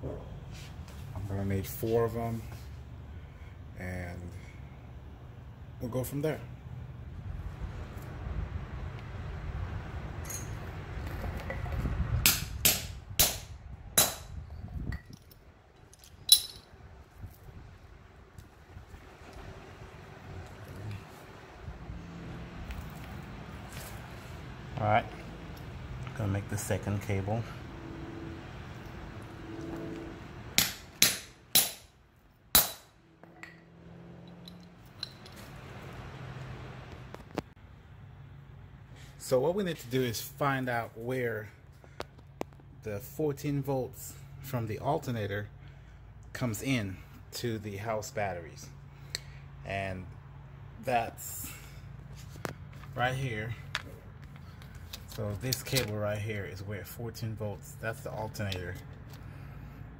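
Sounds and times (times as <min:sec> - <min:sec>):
sharp metal clink: 0:10.2 - 0:10.6, 0:16.2 - 0:16.7
hammer striking metal punch: 0:12.2 - 0:14.4, 0:30.6 - 0:31.9, 0:32.5 - 0:33.6.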